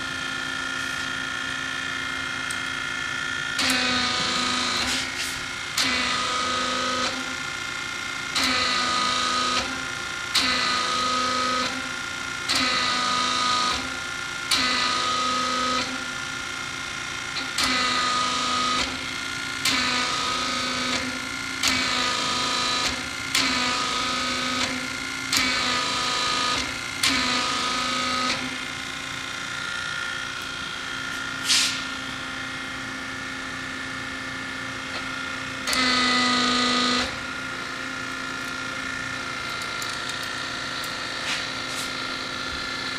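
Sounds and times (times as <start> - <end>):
hydraulic unit humming: 0.0 - 16.1, 17.4 - 42.9.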